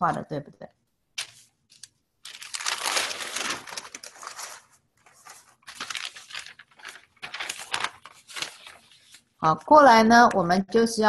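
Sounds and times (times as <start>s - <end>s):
paper rustling and crinkling: 1.2s - 9.4s.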